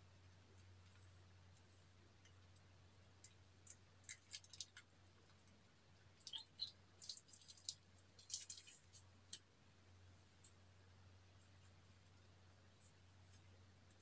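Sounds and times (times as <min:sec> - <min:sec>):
low steady hum: 0:00.0 - 0:14.0
plastic piping bag crinkling: 0:07.0 - 0:09.4.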